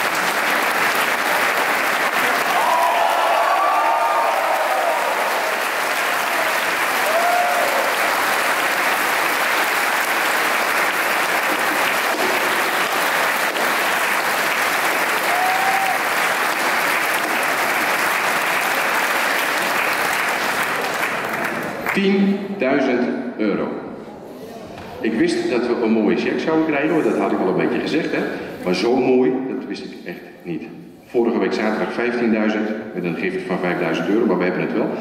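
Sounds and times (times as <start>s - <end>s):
audience applause: 0.0s - 22.0s
calls above applause: 0.0s - 22.1s.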